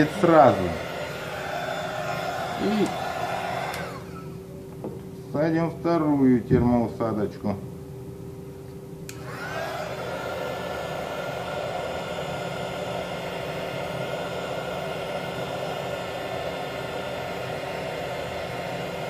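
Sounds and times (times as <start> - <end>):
hot air gun blowing: 0.0 - 4.4
fan whining up: 0.0 - 19.0.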